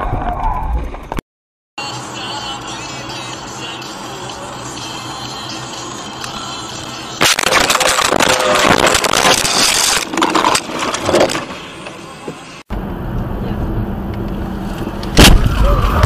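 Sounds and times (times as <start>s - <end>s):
car driving rumble: 1.8s - 16.0s
car crash clatter and scraping: 7.2s - 12.6s.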